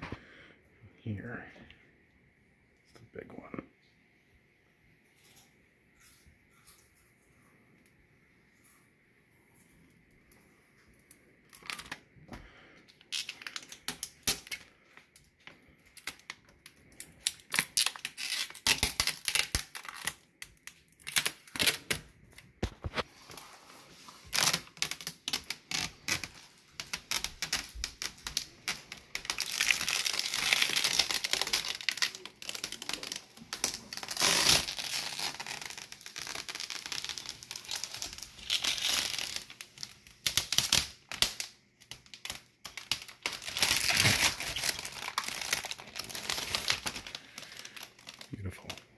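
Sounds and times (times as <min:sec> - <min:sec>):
plastic film peeling and crinkling: 0:10.8 - 0:12.1, 0:12.9 - 0:48.9.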